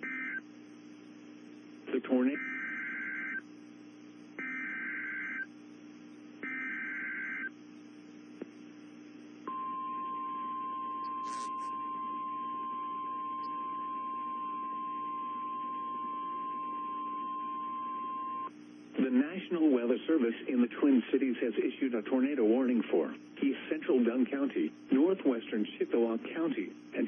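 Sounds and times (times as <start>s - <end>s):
steady warning alarm tone: 0.0s - 1.0s, 2.3s - 5.5s, 6.4s - 7.6s, 9.4s - 18.5s
two-tone digital data warble: 11.0s - 11.9s.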